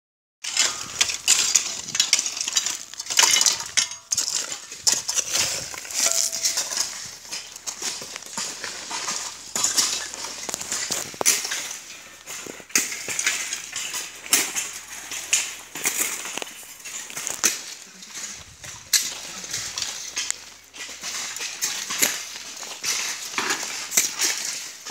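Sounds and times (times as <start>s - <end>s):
rubble and gravel scraping: 0.4s - 24.9s.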